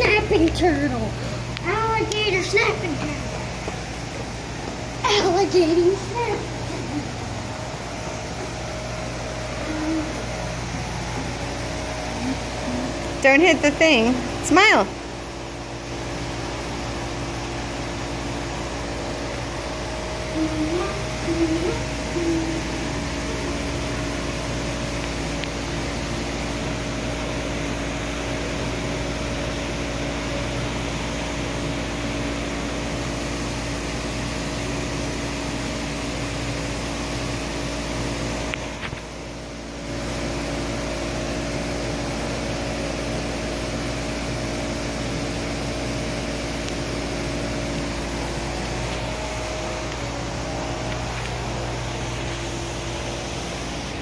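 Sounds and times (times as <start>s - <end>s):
mechanical hum with held tones: 0.0s - 54.0s.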